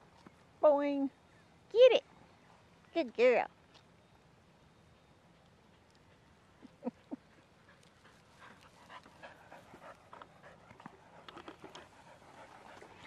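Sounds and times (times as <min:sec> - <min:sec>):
dog panting: 0:05.3 - 0:13.0.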